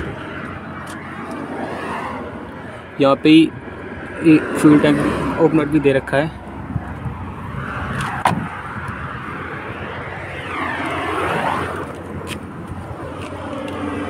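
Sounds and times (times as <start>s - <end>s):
passing vehicle: 0.0s - 14.0s.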